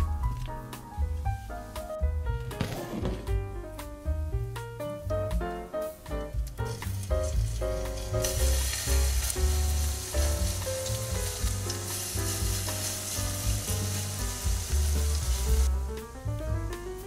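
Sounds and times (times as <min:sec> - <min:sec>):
patties sizzling in a frying pan: 0:06.7 - 0:15.7
wooden spoon in pan: 0:06.7 - 0:15.7.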